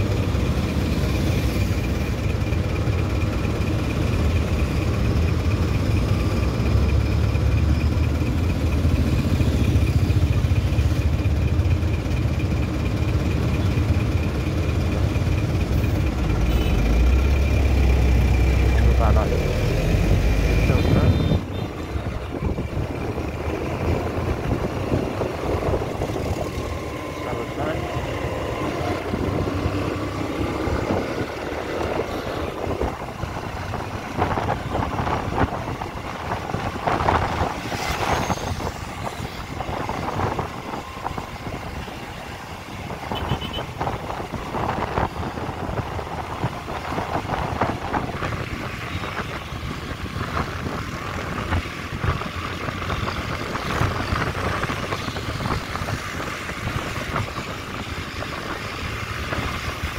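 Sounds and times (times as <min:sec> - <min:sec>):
road traffic: 0:00.0 - 0:59.9.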